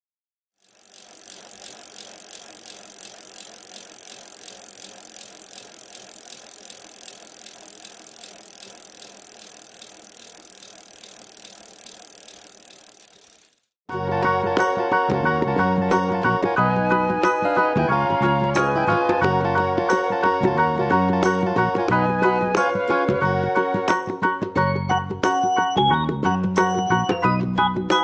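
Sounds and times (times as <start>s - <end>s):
rapid fine ticking: 0.6s - 13.8s.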